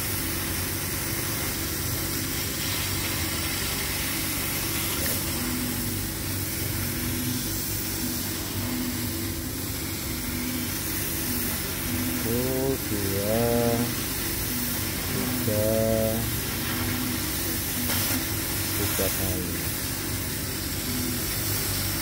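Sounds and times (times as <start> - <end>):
laser cutter hum and hiss: 0.0 - 22.0.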